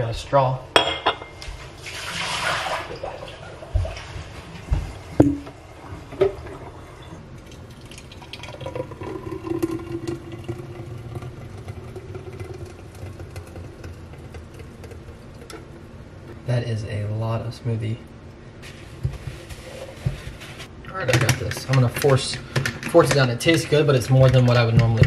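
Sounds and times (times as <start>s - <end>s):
thick smoothie pouring into glass: 7.4s - 15.5s.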